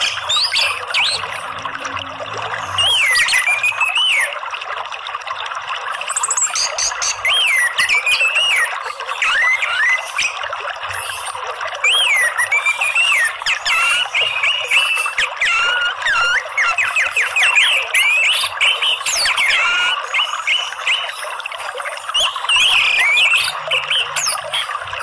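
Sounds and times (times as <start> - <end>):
running water: 0.0 - 25.0
bird singing whistled notes: 2.7 - 4.3.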